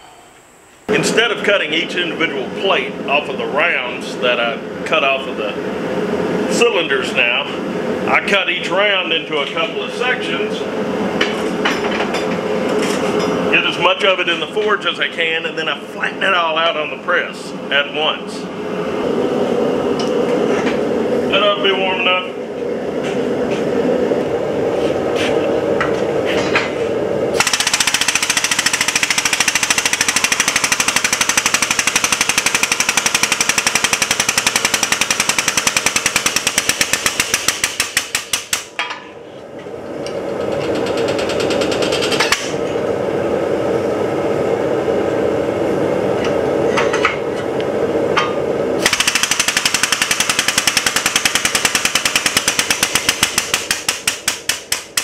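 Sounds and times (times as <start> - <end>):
press pump chattering: 27.4 - 38.6.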